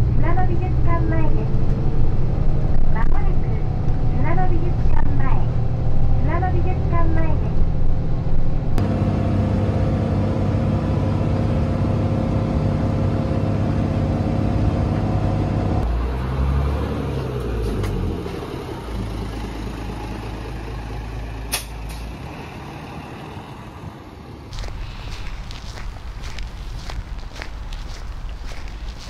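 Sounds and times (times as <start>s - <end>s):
bus engine droning: 0.0s - 29.0s
idling bus low hum: 0.0s - 29.0s.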